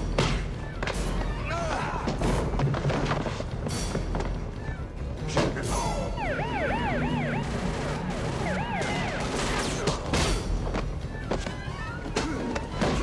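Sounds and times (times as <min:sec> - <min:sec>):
police siren yelping: 0:05.8 - 0:09.8.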